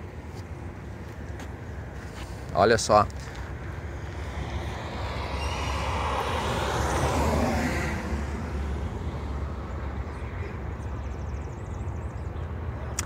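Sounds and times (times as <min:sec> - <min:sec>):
steady low rumble: 0:00.0 - 0:12.7
car passing: 0:03.3 - 0:11.8.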